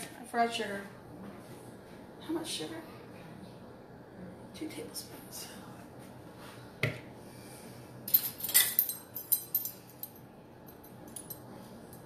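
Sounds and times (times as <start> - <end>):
dishes and utensils clinking: 8.1 - 12.0.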